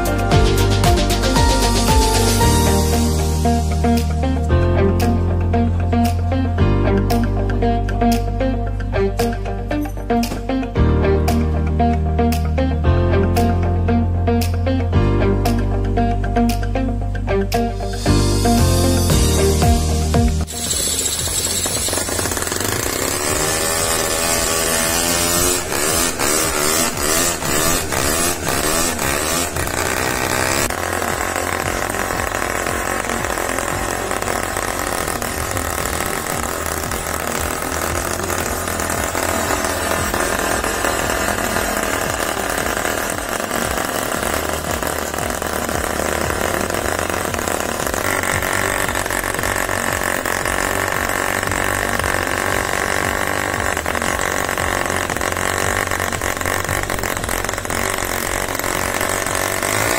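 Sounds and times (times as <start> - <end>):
cordless drill whine: 17.9 - 59.9
model engine popping and running: 18.6 - 59.9.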